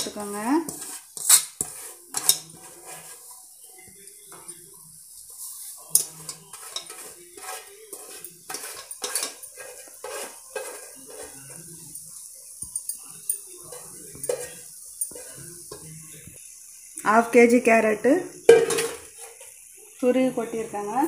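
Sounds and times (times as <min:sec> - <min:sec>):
metal spatula scraping a pan: 0:00.0 - 0:16.0, 0:18.4 - 0:19.6
hot fat sizzling: 0:00.0 - 0:21.0.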